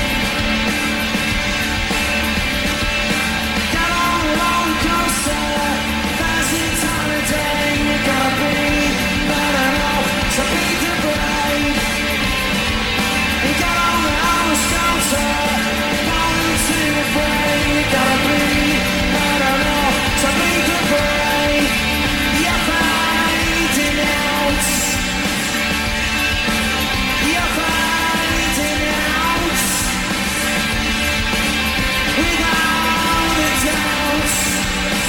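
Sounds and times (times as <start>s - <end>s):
drums: 0.0s - 35.0s
electric guitar: 0.0s - 35.0s
man singing loudly: 3.7s - 12.2s, 13.4s - 25.2s, 27.1s - 30.1s, 32.1s - 35.0s.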